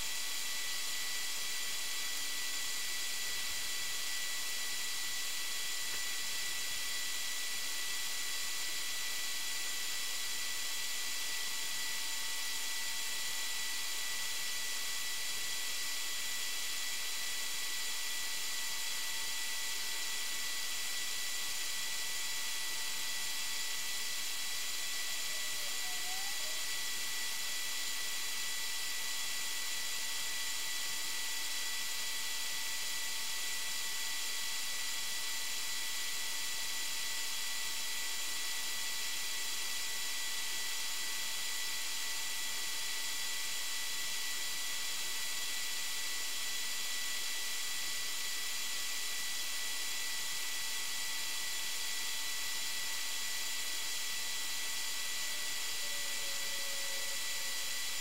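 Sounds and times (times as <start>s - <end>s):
faint high whining tones: 23.5s - 27.0s, 53.2s - 58.0s.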